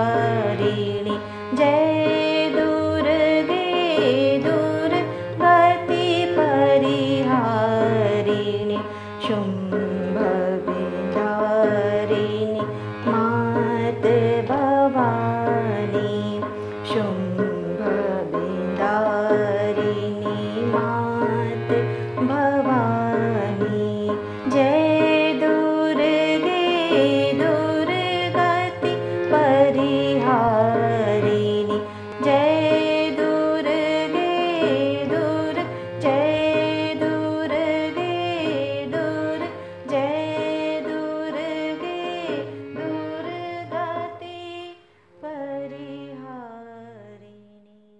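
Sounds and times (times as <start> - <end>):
tabla rhythm: 0.0 - 44.2
classical vocal singing: 0.0 - 47.9.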